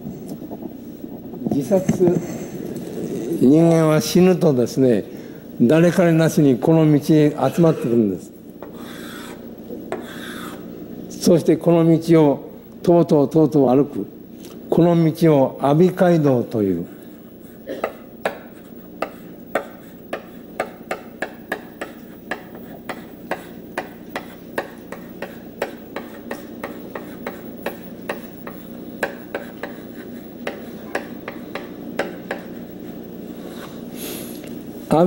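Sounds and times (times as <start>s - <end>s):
steady low hum: 0.0s - 35.0s
chalk tapping on blackboard: 17.8s - 32.8s.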